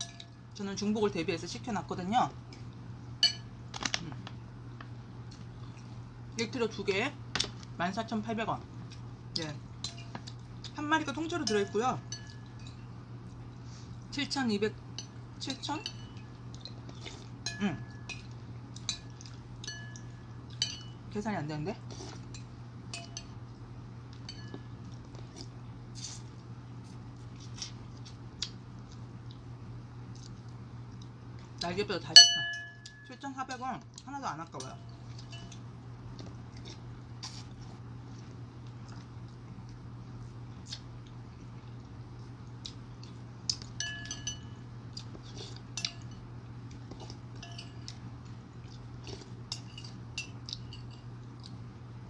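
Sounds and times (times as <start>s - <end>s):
steady low hum: 0.0s - 52.0s
spoon clinking on ceramic bowl: 3.2s - 3.5s, 11.4s - 12.8s, 15.0s - 16.4s, 17.4s - 21.0s, 22.3s - 23.4s, 24.2s - 24.7s, 32.2s - 33.2s, 34.6s - 35.6s, 43.8s - 44.6s, 47.4s - 48.0s
wet chewing and mouth sounds: 16.2s - 17.4s, 18.2s - 20.8s, 24.1s - 31.7s, 34.9s - 43.8s, 44.8s - 51.7s.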